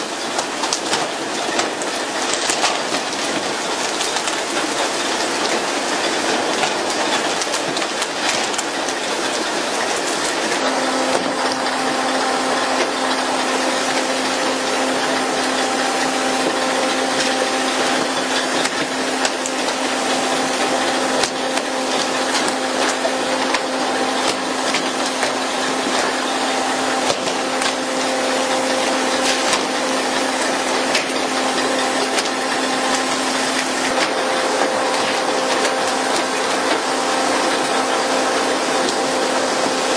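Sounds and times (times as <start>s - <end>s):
low hum of boat machinery: 8.6s - 39.9s.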